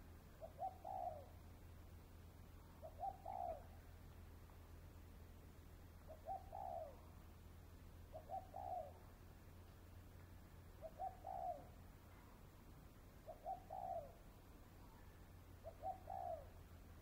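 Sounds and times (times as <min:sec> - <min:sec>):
dove cooing: 0:00.4 - 0:01.4, 0:02.6 - 0:04.0, 0:06.0 - 0:07.2, 0:08.1 - 0:09.2, 0:10.8 - 0:12.4, 0:13.2 - 0:16.9.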